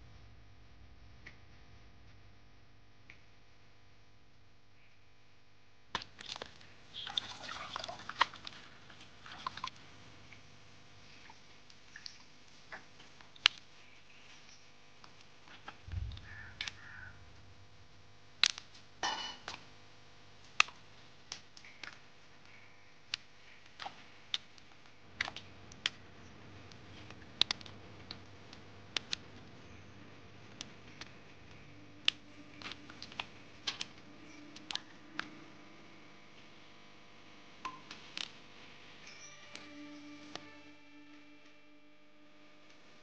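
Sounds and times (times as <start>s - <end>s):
roots snapping: 18.4s - 18.7s.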